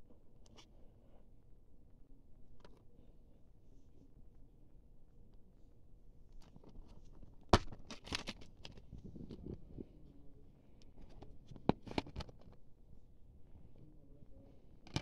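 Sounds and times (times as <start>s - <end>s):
plastic case snapping open: 7.5s - 8.8s
plastic clicks and rattles: 11.0s - 12.6s.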